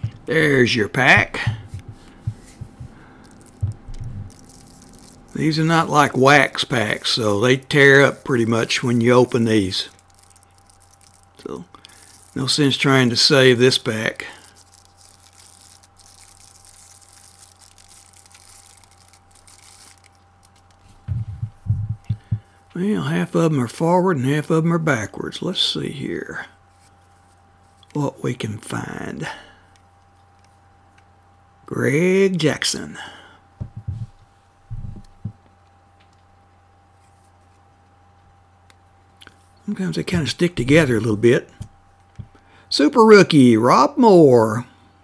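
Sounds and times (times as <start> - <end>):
trading cards handled: 0.0 - 22.4
steady low hum: 0.0 - 45.0
plastic wrapper crinkling: 1.2 - 21.0
soft low knocks: 21.1 - 22.4.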